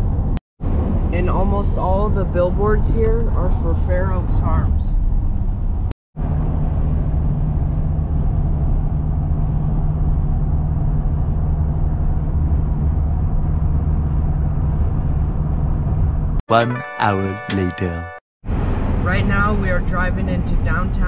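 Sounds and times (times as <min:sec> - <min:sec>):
engine and tyre drone: 0:06.2 - 0:16.4.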